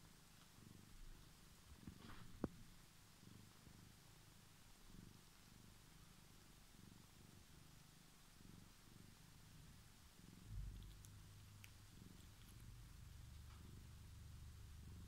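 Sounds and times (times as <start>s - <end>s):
cat purring: 0.0s - 15.0s
faint clicks: 10.6s - 13.7s.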